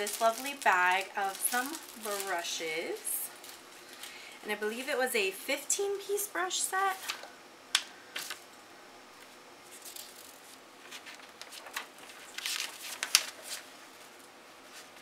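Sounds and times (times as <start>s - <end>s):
packaging rustling: 0.0s - 4.2s, 9.7s - 14.2s.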